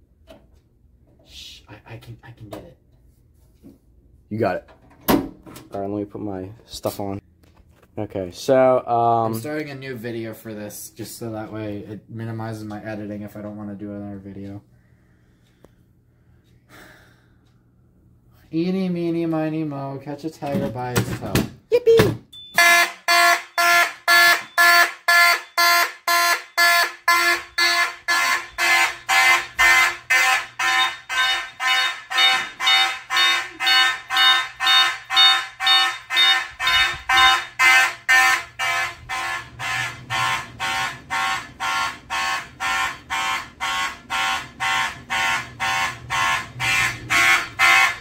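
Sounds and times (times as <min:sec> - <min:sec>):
fire alarm horns pulsing: 0:22.4 - 0:48.0.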